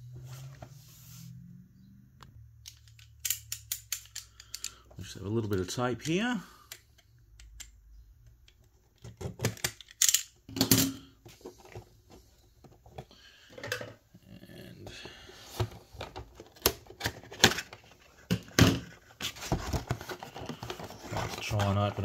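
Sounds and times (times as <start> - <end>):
hands handling cardboard box: 15.5 - 22.0.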